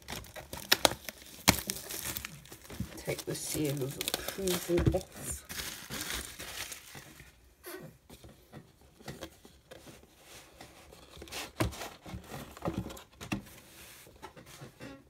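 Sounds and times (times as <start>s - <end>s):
cardboard taps and rustles: 8.1s - 13.6s.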